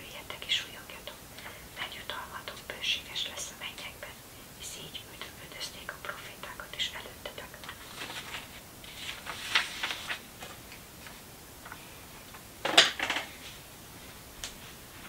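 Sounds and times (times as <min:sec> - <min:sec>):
crisp paper rustle: 0:07.6 - 0:11.2
page rustles: 0:07.6 - 0:11.2.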